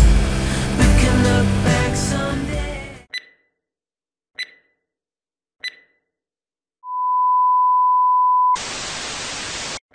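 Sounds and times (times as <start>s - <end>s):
tv static: 8.6s - 9.8s.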